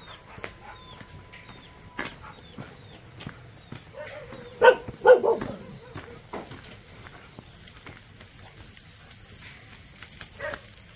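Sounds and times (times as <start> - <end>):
dog barking: 0.0 - 1.0, 3.9 - 6.4, 10.4 - 10.7
faint clicks and light patter: 0.4 - 10.9.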